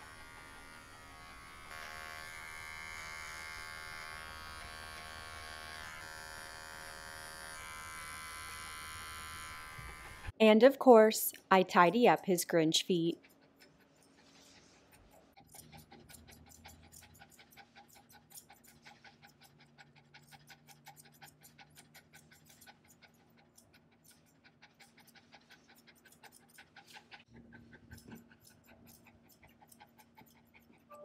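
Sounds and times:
dog panting rapidly: 12.1s - 31.0s.

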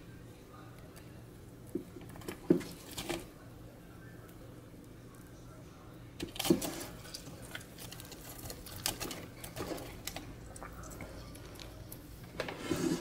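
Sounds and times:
fork scraping air fryer basket: 12.3s - 13.0s.

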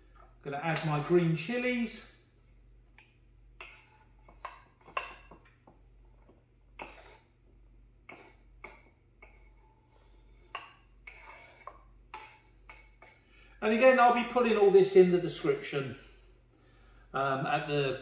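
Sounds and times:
metal utensil scraping wooden board: 10.0s - 13.2s.

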